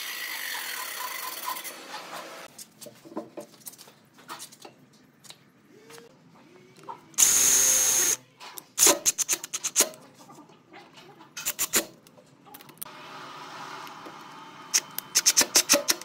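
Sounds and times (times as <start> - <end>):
cordless drill motor whine: 7.2 - 8.2
sharp rapid clicks of drill: 7.2 - 8.2, 8.8 - 9.9, 14.7 - 16.0.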